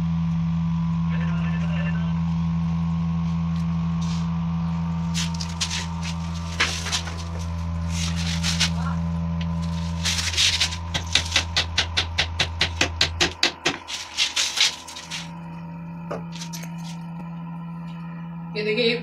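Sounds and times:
low hum: 0.0 - 19.0
knocks and scrapes on concrete: 5.1 - 8.9, 9.6 - 11.6
hammer strikes: 10.6 - 13.9.

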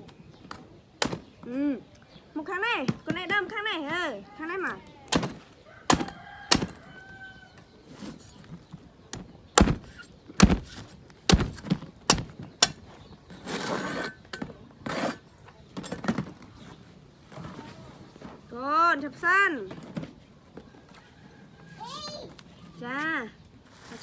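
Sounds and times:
knife chopping coconut husk: 9.6 - 12.8.

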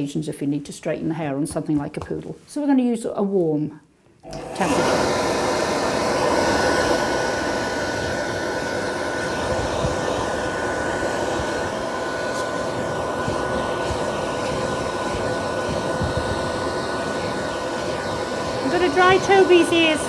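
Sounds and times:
dog grooming dryer blowing air: 4.2 - 20.0.

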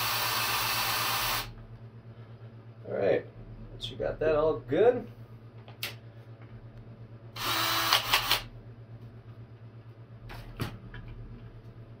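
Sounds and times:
cordless drill whirring: 0.0 - 1.5, 7.4 - 8.5.

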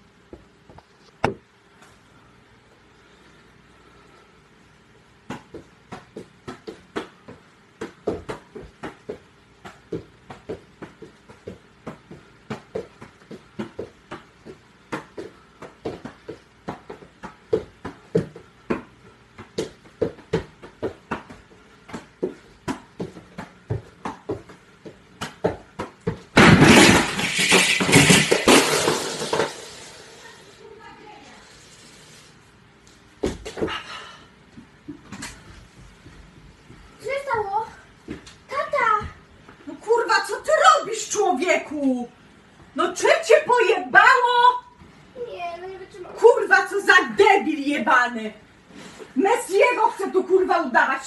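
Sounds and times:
loud crash and clatter: 26.4 - 30.0.

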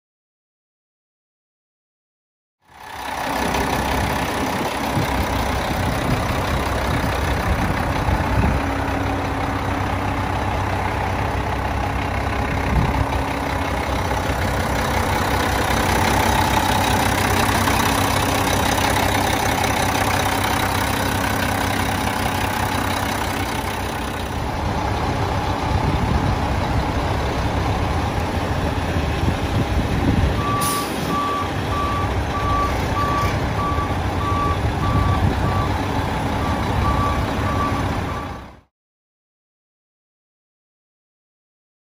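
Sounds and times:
diesel engine idling: 2.7 - 38.7
backup alarm beeping: 30.4 - 35.8.

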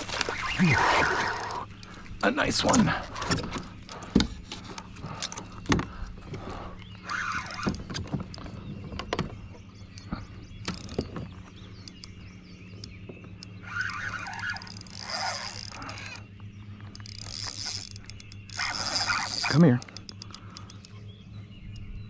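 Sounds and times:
fishing reel clicks: 13.7 - 16.2, 16.9 - 20.9.

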